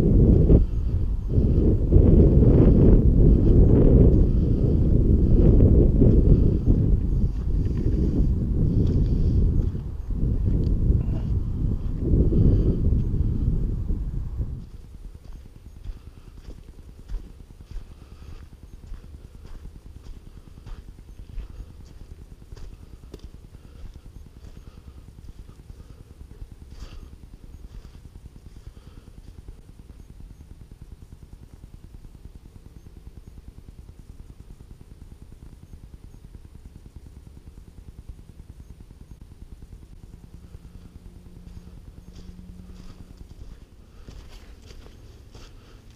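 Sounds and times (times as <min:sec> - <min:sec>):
steady low rumble: 0:00.0 - 0:45.9
footsteps crunching on dry leaves: 0:41.5 - 0:45.9.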